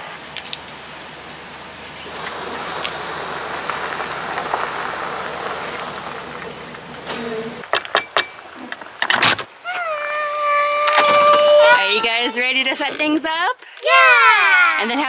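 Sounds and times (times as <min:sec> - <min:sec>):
background hiss: 0:00.0 - 0:09.7
loud clatter: 0:02.0 - 0:08.2.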